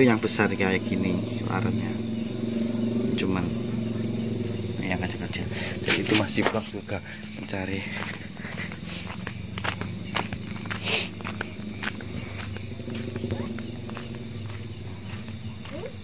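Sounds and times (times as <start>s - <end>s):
crickets chirping: 0.0s - 16.0s
footsteps: 5.8s - 16.0s.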